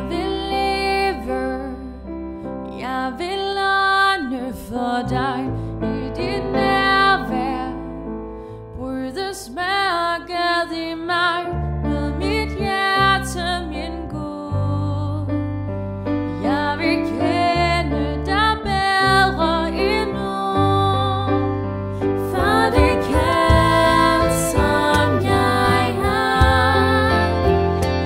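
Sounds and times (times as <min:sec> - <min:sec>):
piano chords: 0:00.0 - 0:28.0
sustained bass notes: 0:14.6 - 0:28.0
women singing with vibrato: 0:22.2 - 0:28.0.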